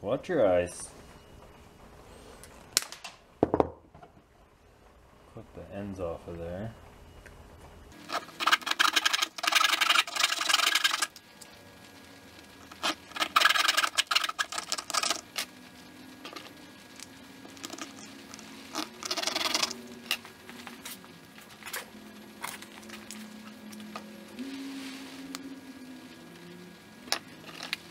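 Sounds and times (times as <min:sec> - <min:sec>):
small clicks and scrapes: 0:27.1 - 0:27.9.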